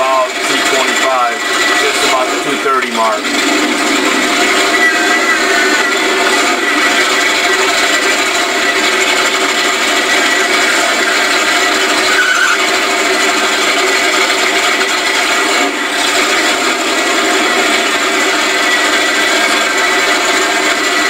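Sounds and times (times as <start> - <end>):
truck engine running loud: 0.0 - 21.0.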